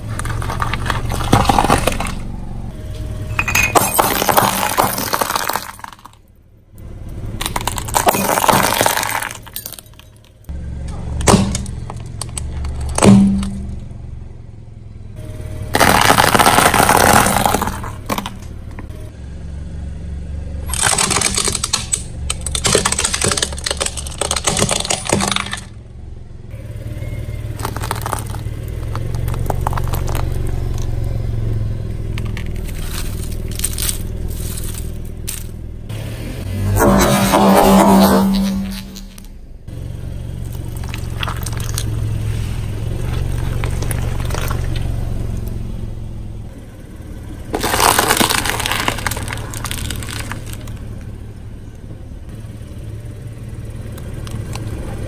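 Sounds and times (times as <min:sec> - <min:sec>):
tyre crushing plastic objects: 0:00.0 - 0:02.2, 0:03.5 - 0:06.2, 0:07.4 - 0:10.2, 0:15.8 - 0:18.5, 0:20.7 - 0:25.7, 0:27.6 - 0:30.9, 0:32.1 - 0:35.6, 0:43.0 - 0:44.9, 0:47.5 - 0:50.8.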